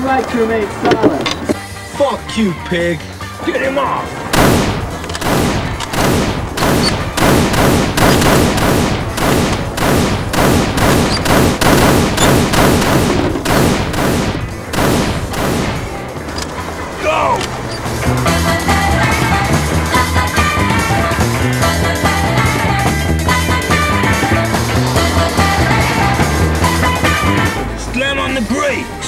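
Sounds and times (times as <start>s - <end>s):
pistol gunshots: 4.3s - 16.3s.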